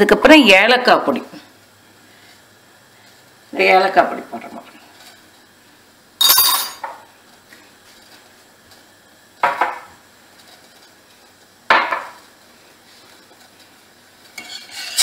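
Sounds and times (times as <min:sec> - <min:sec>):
metal spoon scraping saucepan: 0:14.4 - 0:15.0.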